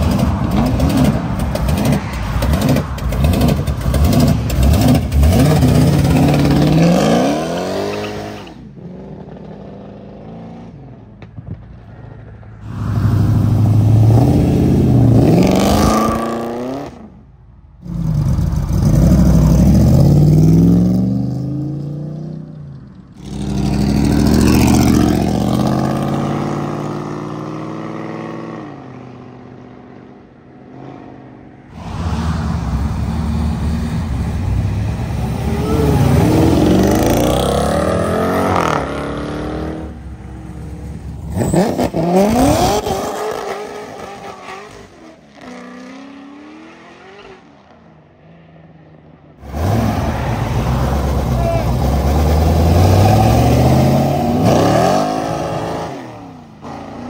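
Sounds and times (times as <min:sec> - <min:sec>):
car engines revving past: 0:17.8 - 0:57.0.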